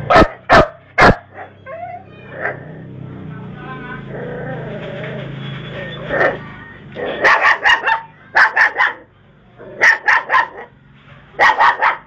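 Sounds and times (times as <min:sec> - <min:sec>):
dog barking: 0:00.0 - 0:01.6, 0:07.0 - 0:09.1, 0:09.8 - 0:10.7, 0:11.4 - 0:12.0.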